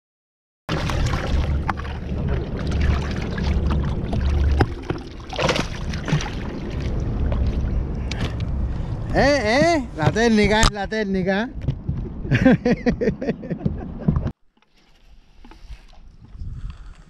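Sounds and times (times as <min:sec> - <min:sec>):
water rushing: 0:00.7 - 0:10.7
low rumbling: 0:00.7 - 0:14.4
wind noise: 0:00.8 - 0:14.3, 0:15.4 - 0:17.0.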